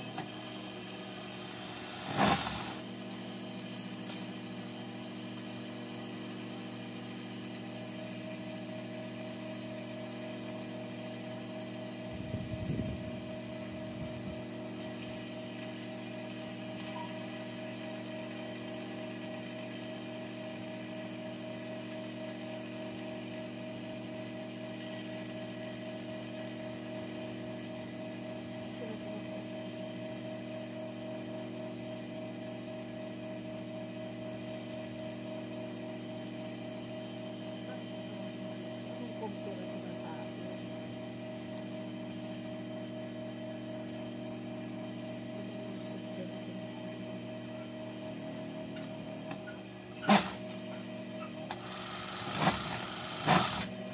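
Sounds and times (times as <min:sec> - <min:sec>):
steady electrical hum: 0:00.0 - 0:07.7, 0:11.3 - 0:17.8.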